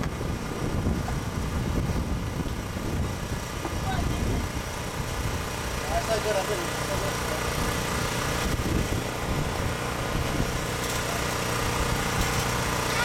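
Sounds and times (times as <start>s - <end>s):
steady engine drone: 0.0s - 13.0s.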